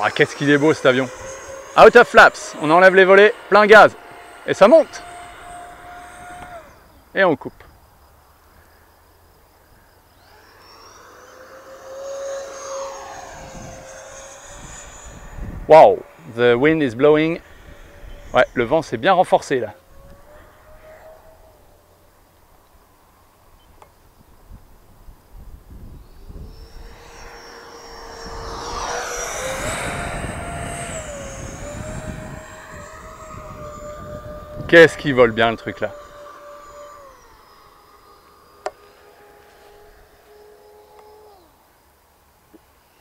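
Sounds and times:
model jet fans whining: 0:00.0 - 0:43.0
wind rumbling on microphone: 0:12.2 - 0:40.2.

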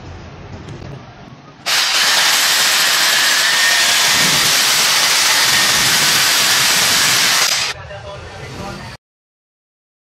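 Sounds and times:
hammer drill boring into concrete: 0:01.7 - 0:07.8.

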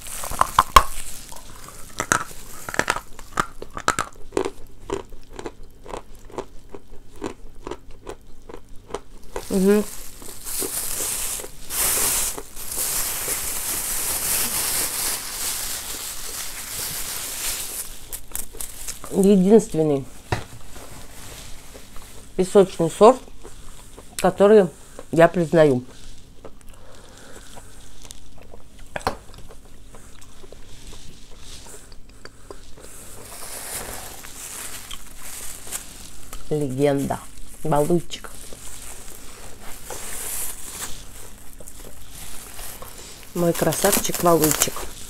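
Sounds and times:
plastic bag rustling: 0:00.0 - 0:04.1, 0:09.2 - 0:23.2, 0:32.6 - 0:45.0
chalk being chewed: 0:00.0 - 0:13.8, 0:25.9 - 0:36.5, 0:38.2 - 0:45.0.

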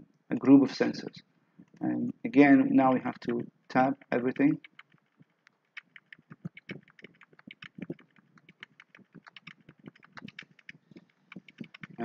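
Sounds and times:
computer keyboard typing: 0:02.9 - 0:03.4, 0:04.0 - 0:12.0.

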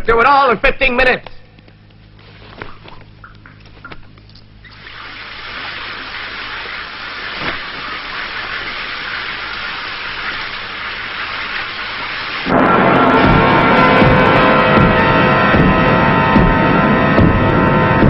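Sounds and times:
hiss of falling water: 0:04.7 - 0:12.5
loud droning sustained tones: 0:09.2 - 0:18.0.

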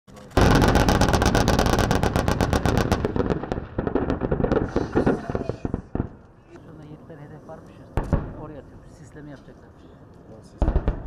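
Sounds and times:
machine-gun fire: 0:00.4 - 0:06.2.

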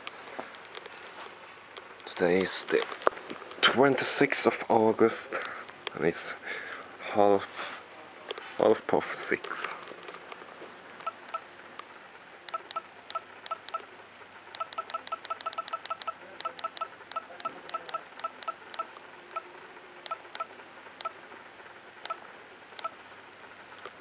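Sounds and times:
camera button beeps with clicks: 0:14.6 - 0:19.4, 0:20.1 - 0:21.2.

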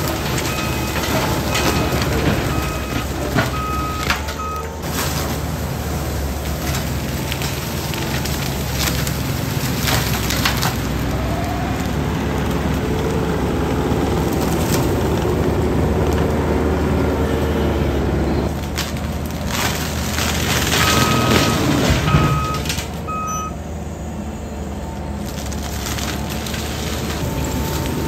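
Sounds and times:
mulcher grinding brush: 0:00.0 - 0:23.1, 0:25.1 - 0:28.0
diesel engine under load: 0:00.0 - 0:28.0
wood splintering cracks: 0:06.2 - 0:16.8, 0:18.5 - 0:23.0, 0:25.2 - 0:28.0.

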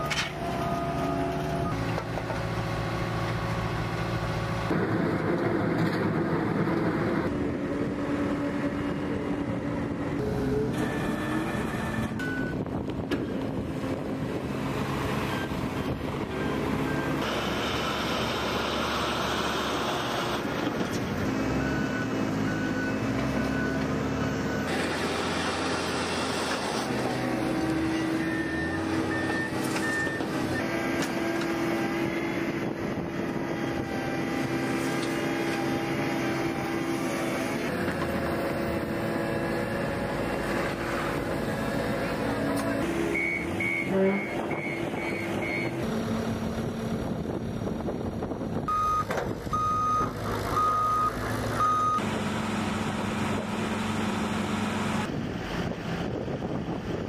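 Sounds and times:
diesel engines running: 0:00.0 - 0:57.0
backup alarm beeping: 0:43.2 - 0:45.7, 0:48.7 - 0:52.0.

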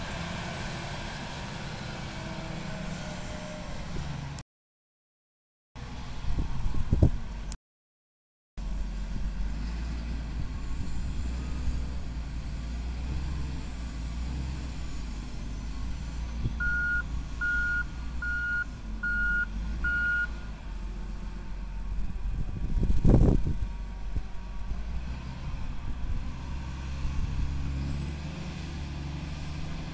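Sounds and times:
wheel loader diesel engine: 0:00.0 - 0:04.4, 0:08.6 - 0:29.9
reversing alarm beeps: 0:16.6 - 0:20.3.

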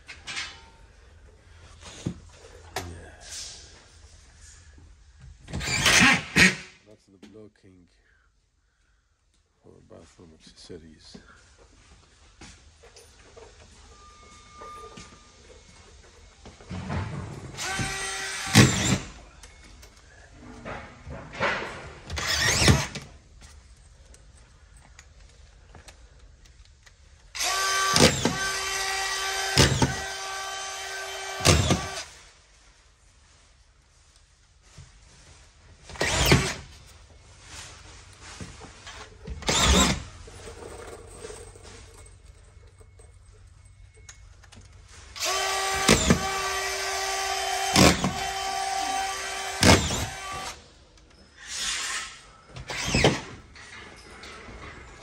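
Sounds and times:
cordless drill driving screws: 0:05.6 - 0:06.6, 0:17.6 - 0:19.2, 0:22.0 - 0:23.1, 0:27.3 - 0:32.1, 0:35.9 - 0:36.7, 0:39.4 - 0:40.1, 0:45.1 - 0:50.6, 0:51.4 - 0:53.4.

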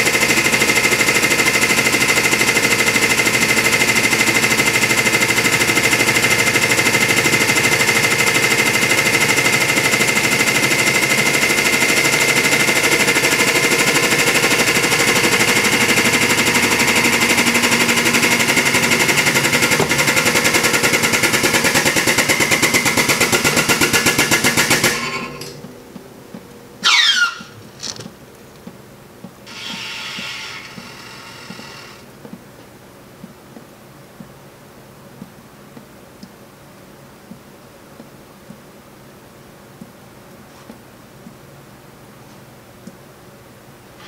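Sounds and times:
hydraulic pump chattering and whining: 0:00.0 - 0:25.6, 0:29.4 - 0:32.1.

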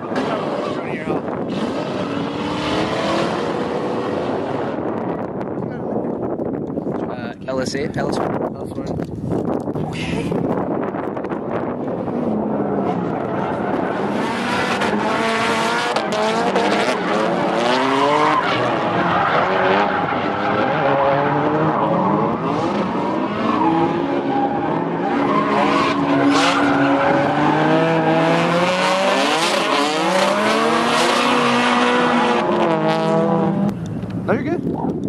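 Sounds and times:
car engines revving: 0:00.0 - 0:07.2, 0:09.0 - 0:35.0
tyres squealing on asphalt: 0:12.6 - 0:32.5.

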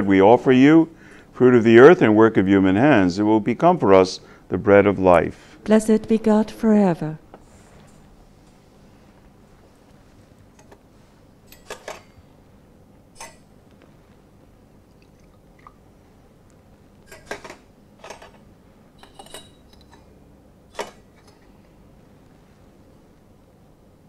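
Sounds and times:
liquid pouring: 0:14.8 - 0:15.9
glass vessels clinking: 0:19.0 - 0:20.1.

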